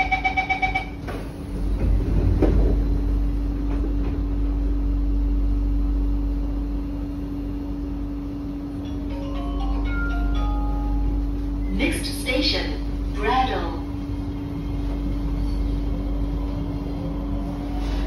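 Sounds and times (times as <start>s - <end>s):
train humming and rumbling: 0.0s - 18.0s
train sliding doors closing: 1.0s - 4.4s, 14.5s - 18.0s.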